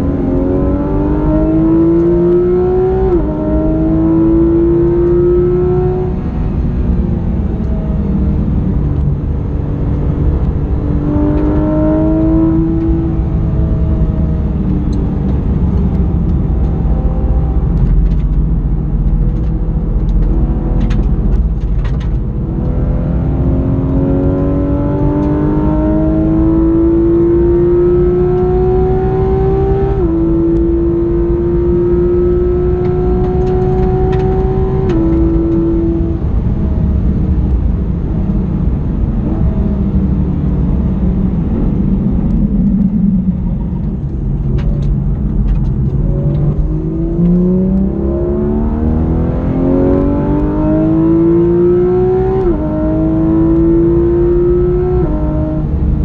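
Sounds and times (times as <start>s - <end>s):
road and wind rumble: 0.0s - 56.0s
sports car engine accelerating: 0.0s - 56.0s.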